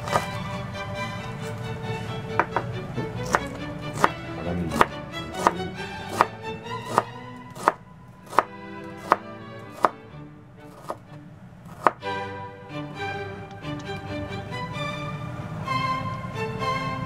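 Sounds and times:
background music: 0:00.0 - 0:17.0
knife chopping on cutting board: 0:00.1 - 0:00.3, 0:02.4 - 0:10.0, 0:10.7 - 0:11.0, 0:11.7 - 0:12.0.

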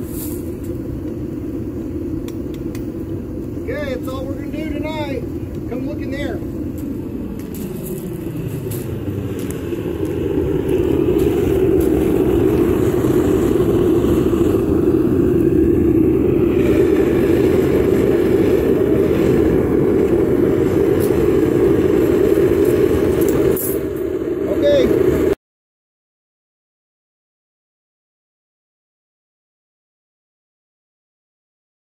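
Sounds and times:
propane burner flame rushing: 0:00.0 - 0:25.4.

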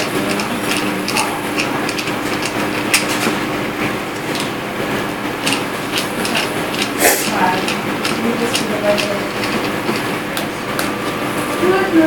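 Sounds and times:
screwdriver clicks and ticks: 0:00.0 - 0:03.0, 0:05.4 - 0:06.9.

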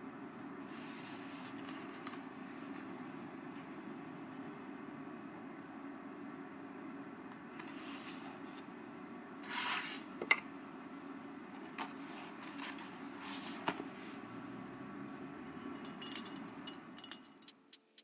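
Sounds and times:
low room hum: 0:00.0 - 0:18.0
pages rustling: 0:00.6 - 0:03.0, 0:07.5 - 0:08.7.

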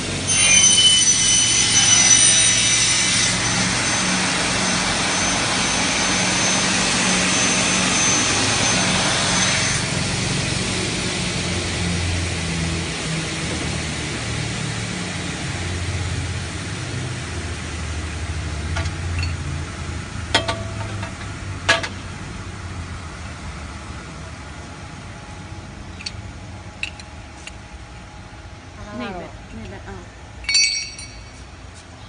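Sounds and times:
cutting saw humming: 0:00.0 - 0:13.2.

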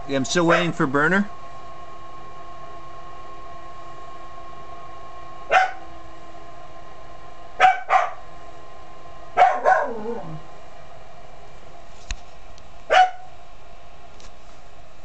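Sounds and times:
furnace fan hum: 0:00.0 - 0:15.0
dog barking: 0:00.5 - 0:00.8, 0:05.5 - 0:05.9, 0:07.6 - 0:08.2, 0:09.4 - 0:10.4, 0:12.9 - 0:13.4.

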